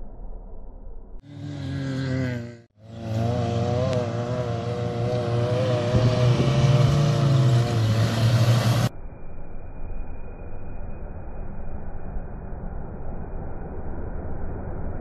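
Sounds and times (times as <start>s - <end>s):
car engine revving hard: 1.3s - 8.9s.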